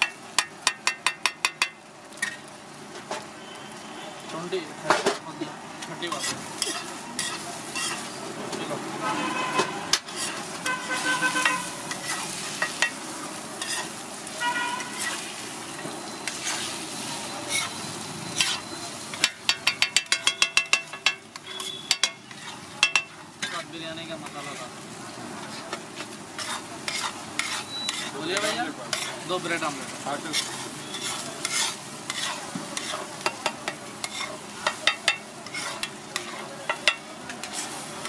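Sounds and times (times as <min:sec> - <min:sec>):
eggs sizzling on griddle: 0:00.0 - 0:38.0
metal spatula scraping hot plate: 0:06.0 - 0:08.2, 0:09.0 - 0:14.0, 0:14.6 - 0:24.7, 0:25.4 - 0:38.0.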